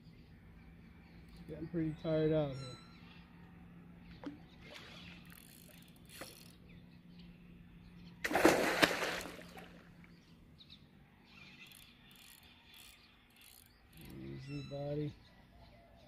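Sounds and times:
fish splashing in water: 8.2s - 10.0s.

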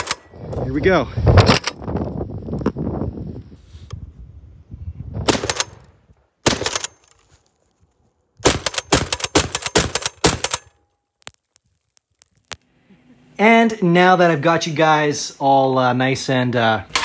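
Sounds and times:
rifle shots: 5.2s - 7.0s, 8.4s - 10.7s.

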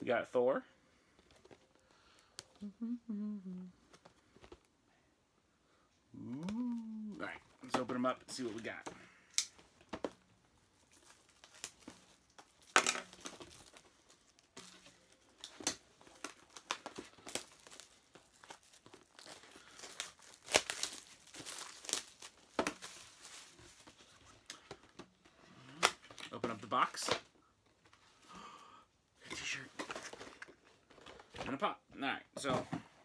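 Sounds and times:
plastic packaging crinkling: 10.6s - 24.6s
packaging tearing: 10.9s - 23.6s.

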